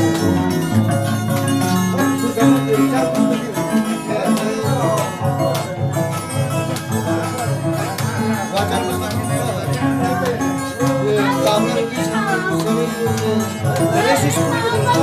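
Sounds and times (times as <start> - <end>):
harp playing lively tune: 0.0 - 15.0.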